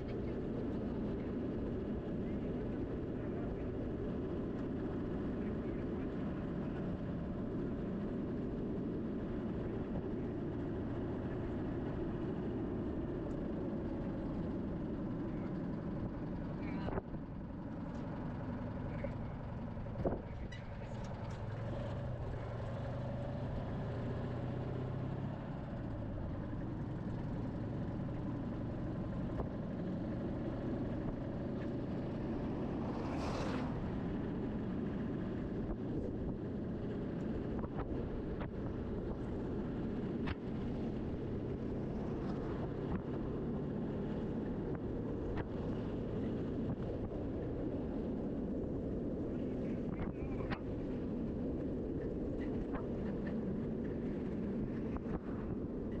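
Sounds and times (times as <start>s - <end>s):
car engine driving: 0.0s - 56.0s
road noise: 0.0s - 56.0s
bus passing with a whoosh: 29.1s - 48.4s.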